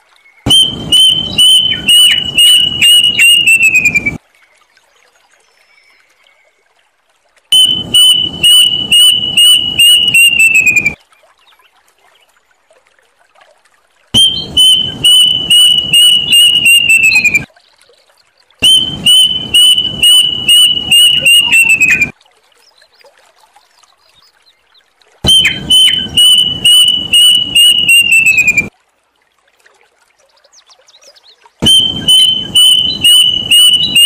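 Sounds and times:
cuckoo singing: 0.5s - 4.2s, 7.6s - 11.0s, 14.2s - 17.5s, 18.6s - 22.1s, 25.2s - 28.7s, 31.6s - 34.0s.

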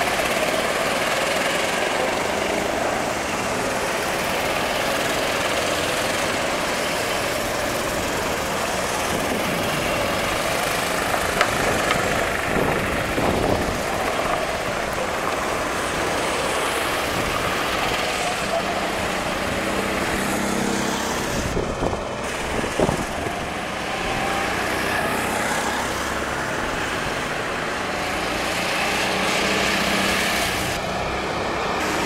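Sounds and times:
go-kart engines running: 0.0s - 32.0s
go-kart passing close: 0.0s - 32.0s.

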